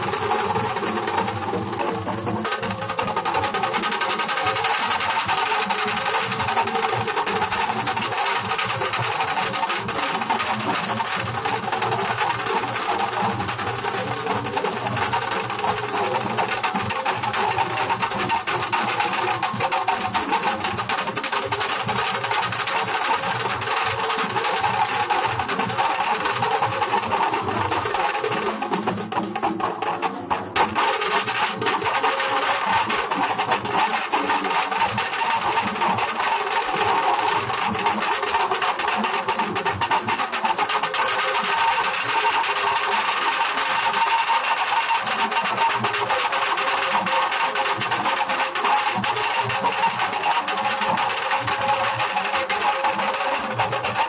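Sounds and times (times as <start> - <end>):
barrel drums beaten with sticks: 28.4 - 31.8.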